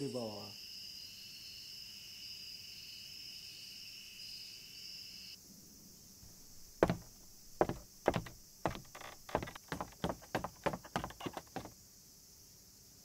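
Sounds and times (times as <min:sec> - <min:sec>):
crickets chirping: 0:00.0 - 0:13.0
footstep on floor: 0:06.3 - 0:11.8.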